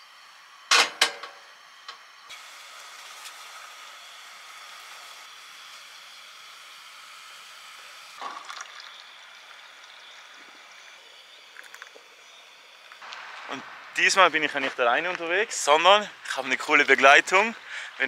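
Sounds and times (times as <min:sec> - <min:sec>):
running water hiss: 0:08.2 - 0:15.4.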